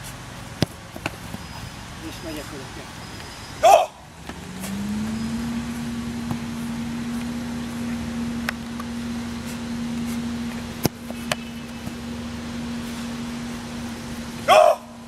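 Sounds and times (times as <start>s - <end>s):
football thuds: 0.5s - 1.5s, 6.2s - 6.6s, 8.8s - 12.1s
motor humming: 4.2s - 15.0s.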